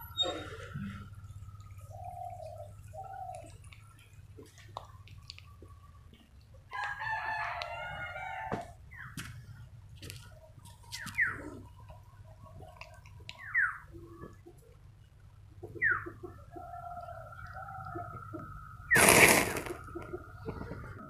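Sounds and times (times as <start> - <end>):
bird chirps: 10.9 - 11.6, 12.6 - 14.3, 15.6 - 20.5
hot wax spattering: 19.0 - 19.9.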